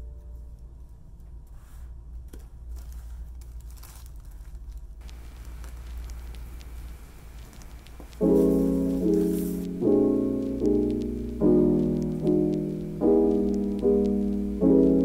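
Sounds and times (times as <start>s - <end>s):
plastic crinkling and rustling: 2.2s - 9.6s.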